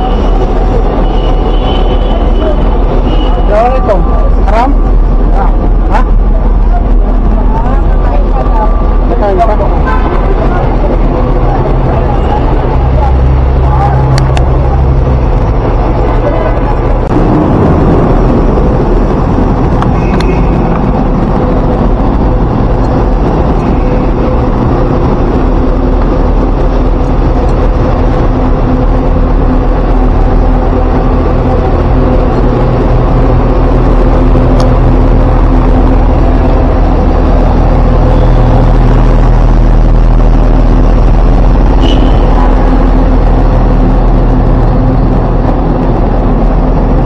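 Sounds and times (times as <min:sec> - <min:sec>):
bus engine idling: 0:00.0 - 0:47.0
traffic noise: 0:00.0 - 0:47.0.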